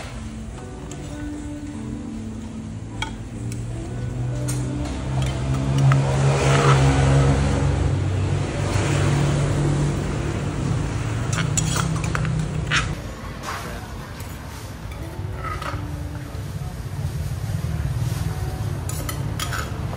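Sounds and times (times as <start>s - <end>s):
vehicle engine passing: 3.8s - 13.0s
metal spoon clinking on mortar: 18.9s - 19.8s.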